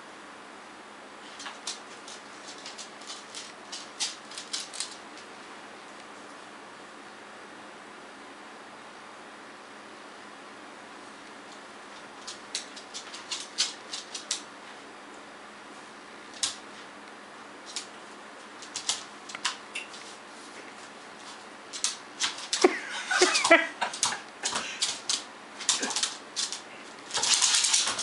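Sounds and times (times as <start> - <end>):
dog claws clicking on wood floor: 1.3 - 5.3, 11.5 - 14.5, 16.3 - 16.6, 17.6 - 20.1, 21.2 - 28.0.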